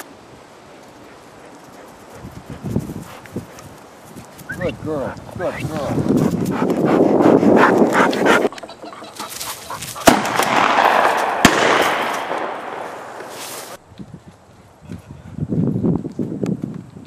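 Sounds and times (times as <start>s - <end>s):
shotgun shots: 10.0s - 13.3s.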